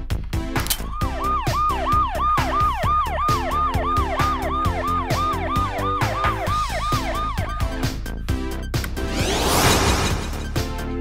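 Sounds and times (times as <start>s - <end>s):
background music with steady beat: 0.0s - 9.1s
toy fire engine siren wailing: 1.0s - 7.8s.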